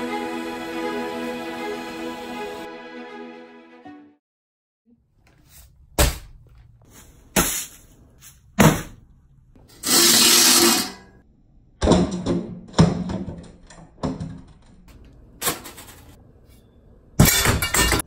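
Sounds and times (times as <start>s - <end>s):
metal bucket scraping: 9.8s - 11.1s.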